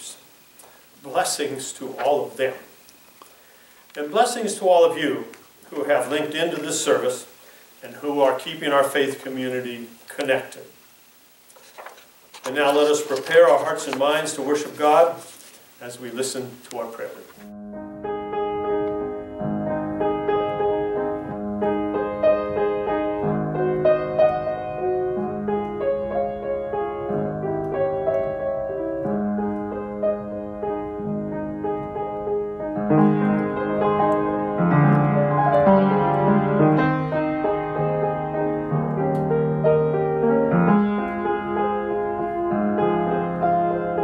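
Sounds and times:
slow gentle piano chords: 17.1 - 44.0.

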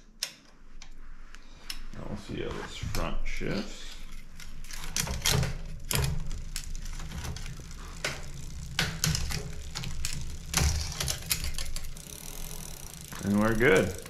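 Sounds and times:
bicycle chain clicking and rattling: 3.6 - 14.0.

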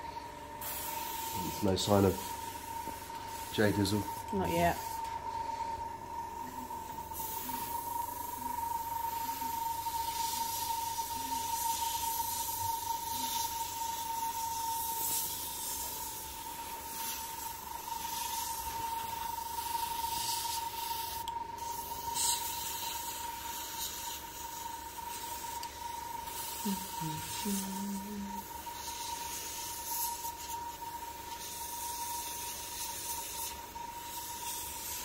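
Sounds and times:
steady high-pitched tone: 0.0 - 22.0, 25.4 - 29.8
airbrush hissing in spurts: 0.0 - 35.0.

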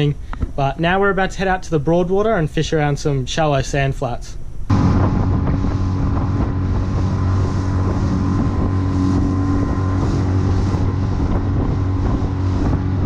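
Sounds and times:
wind on microphone: 4.6 - 13.0
outboard motor running: 4.7 - 13.0
water rushing along hull: 4.7 - 13.0.

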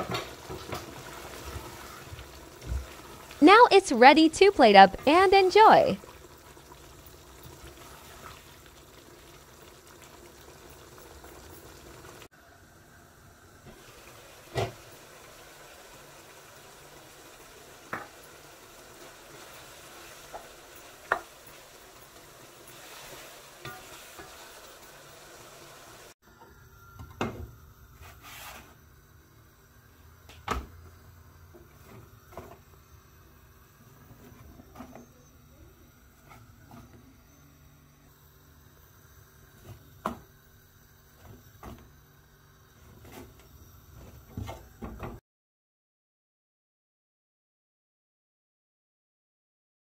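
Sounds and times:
low sizzling hiss: 0.0 - 12.3.

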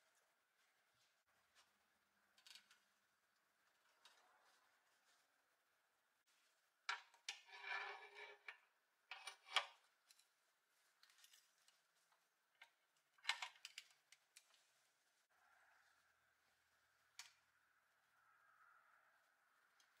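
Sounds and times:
metal scrape: 7.3 - 8.5.

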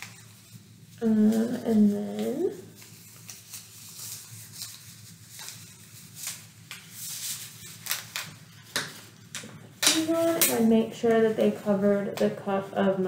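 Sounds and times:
rubber gloves snapping and rustling: 2.2 - 10.7.

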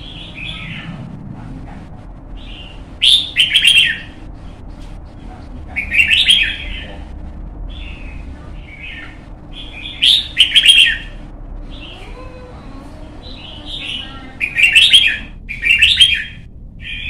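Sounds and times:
bird warbled song phrases: 0.0 - 1.0, 2.4 - 4.5, 5.8 - 7.1, 7.7 - 12.3, 13.1 - 17.0.

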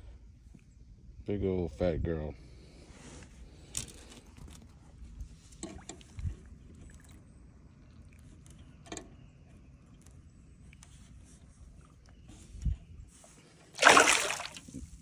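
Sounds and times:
water splashing and sloshing: 3.2 - 8.6, 9.8 - 15.0.

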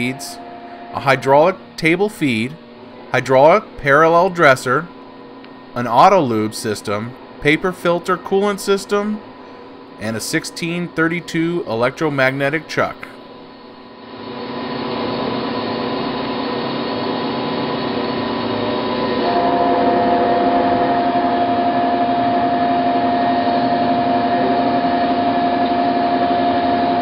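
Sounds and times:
grinding wheel whine: 0.0 - 27.0
surface grinder humming: 14.2 - 27.0.

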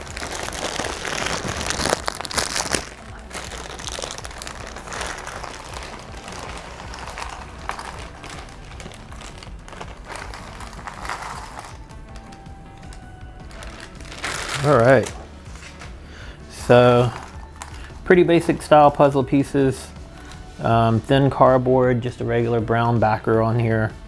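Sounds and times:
plastic bag crinkling: 0.0 - 18.9.

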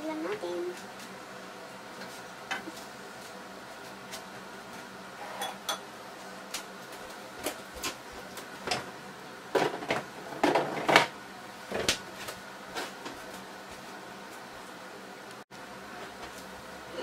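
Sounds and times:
kitchenware clattering: 5.3 - 5.8.

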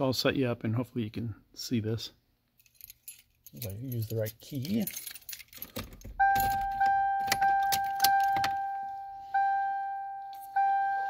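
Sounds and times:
keys jangling: 2.6 - 8.5
car warning chime dinging: 6.1 - 11.0.

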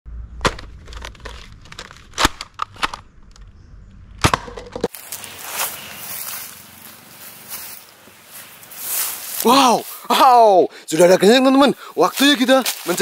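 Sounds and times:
rustling of grass and leaves: 4.8 - 13.0.

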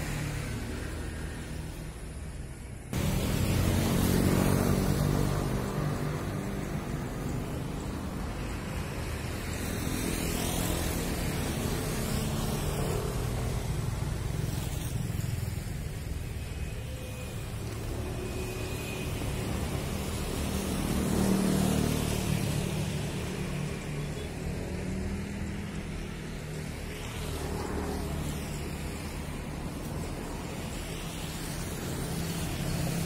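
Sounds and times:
engine hum: 0.0 - 16.8
vehicles passing: 0.0 - 33.0.

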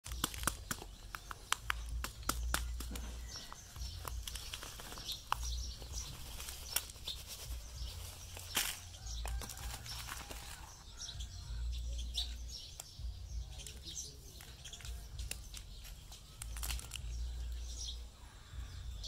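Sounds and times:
plastic bottle crinkling: 0.0 - 10.9, 13.6 - 17.6
birds chirping: 0.0 - 19.0.

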